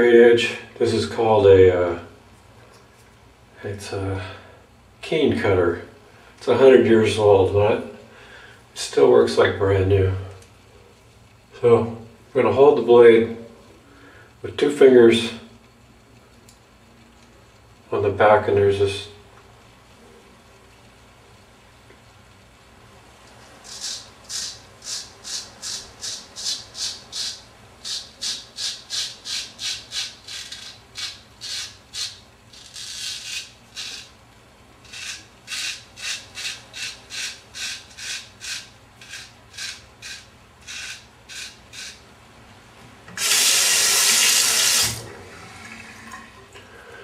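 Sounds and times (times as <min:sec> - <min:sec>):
razor scraping whiskers: 0:23.6 - 0:34.1, 0:34.8 - 0:42.0.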